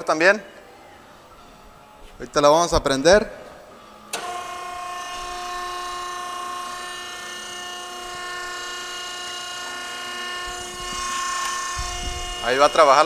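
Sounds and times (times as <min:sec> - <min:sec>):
hydraulic machine whine: 0:02.7 - 0:13.0.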